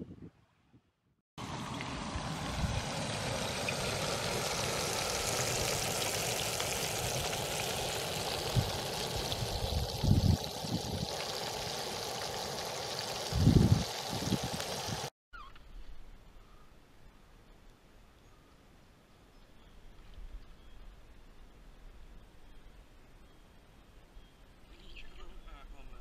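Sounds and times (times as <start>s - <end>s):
creek water rushing: 1.4s - 15.1s
wind thumps on microphone: 8.5s - 11.1s, 13.3s - 14.6s.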